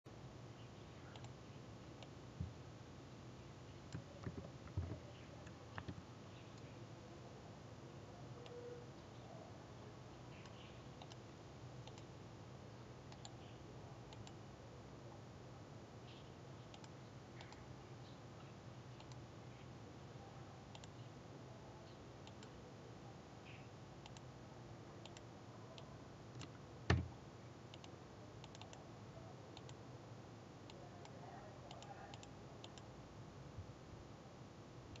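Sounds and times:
computer mouse clicks: 0:01.1 - 0:01.4, 0:03.9 - 0:06.7, 0:10.4 - 0:11.2, 0:11.8 - 0:12.1, 0:13.1 - 0:14.4, 0:16.6 - 0:17.6, 0:19.0 - 0:19.2, 0:20.7 - 0:21.0, 0:22.2 - 0:22.6, 0:23.5 - 0:24.3, 0:25.0 - 0:27.1, 0:27.7 - 0:28.8, 0:29.6 - 0:29.8, 0:30.7 - 0:32.9
keyboard keystrokes: 0:26.4 - 0:27.1.

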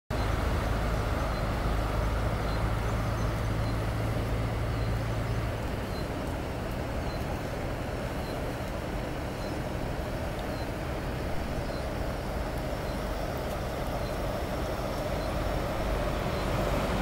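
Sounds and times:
road noise: 0:00.1 - 0:17.0
truck engine hum: 0:00.1 - 0:17.0.

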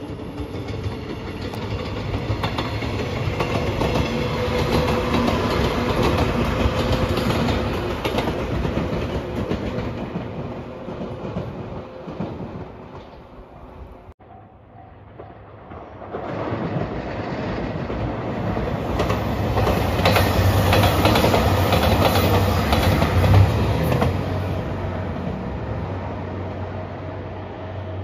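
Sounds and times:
diesel train engine hum: 0:00.0 - 0:14.1
wheels clacking over rail joints: 0:00.1 - 0:13.6, 0:15.1 - 0:24.4.

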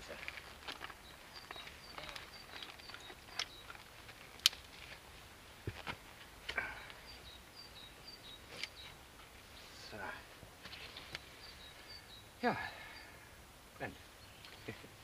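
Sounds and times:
wood fire clicking and knocking: 0:00.2 - 0:04.8.

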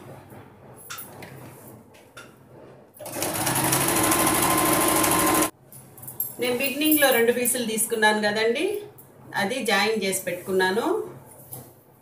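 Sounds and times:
sewing machine stitching: 0:03.0 - 0:05.5.

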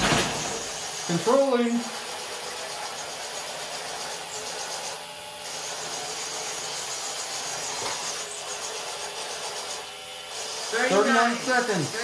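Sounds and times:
robot motors and wheels whirring: 0:00.0 - 0:12.0.

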